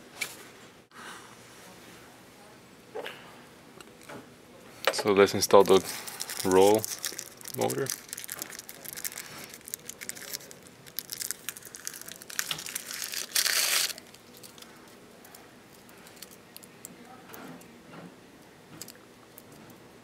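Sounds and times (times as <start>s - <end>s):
plastic wrapping crinkling: 5.4s - 16.8s
plastic tearing: 5.6s - 14.7s.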